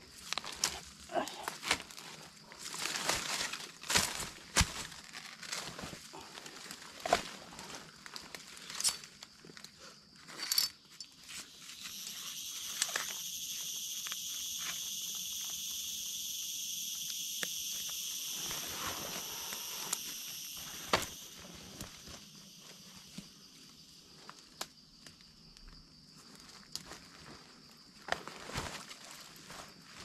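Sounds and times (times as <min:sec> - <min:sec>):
twigs snapping: 0:02.8 - 0:05.6
high-pitched insect drone: 0:10.4 - 0:24.4.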